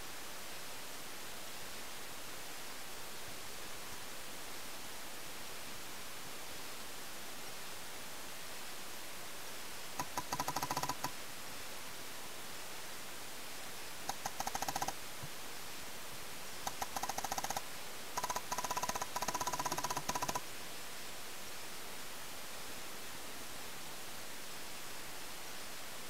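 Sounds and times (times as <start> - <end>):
steady hiss: 0.0 - 26.0
paintball markers firing: 16.7 - 17.6.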